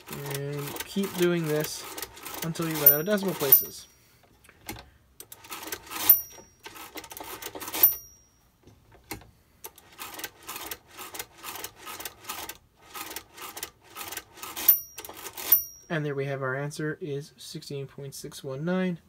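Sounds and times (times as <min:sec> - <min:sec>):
mechanical calculator gears rattling: 0:00.0 - 0:03.8, 0:05.2 - 0:08.1, 0:09.7 - 0:15.8
calculator bell ringing: 0:02.4 - 0:03.9, 0:05.9 - 0:06.9, 0:07.7 - 0:08.4, 0:14.4 - 0:15.9.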